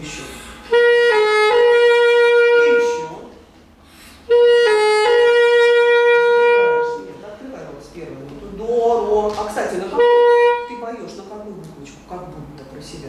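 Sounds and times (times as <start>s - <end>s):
alto saxophone phrase: 0.0s - 3.5s, 4.2s - 7.5s, 9.0s - 11.0s.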